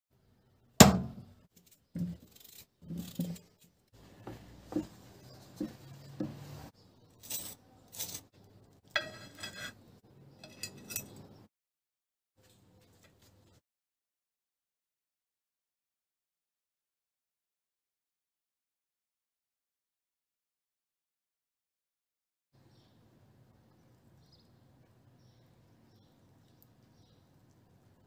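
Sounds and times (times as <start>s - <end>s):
utensils scraping: 1.6s - 3.7s, 4.7s - 9.8s, 10.4s - 11.4s
metal and dishes clinking: 8.9s - 9.8s, 10.4s - 11.5s.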